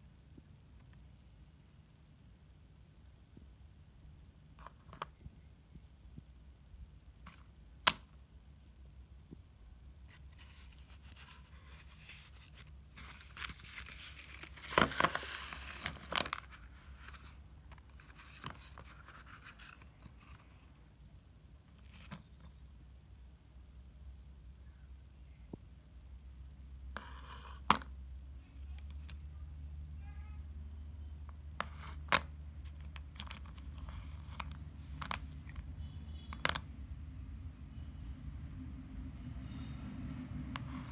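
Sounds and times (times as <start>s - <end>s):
cardboard box rustling: 10.1s - 17.4s.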